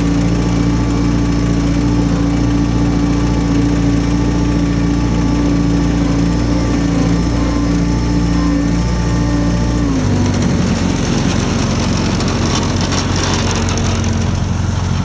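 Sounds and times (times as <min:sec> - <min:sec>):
ride-on mower diesel engine: 0:00.0 - 0:15.0.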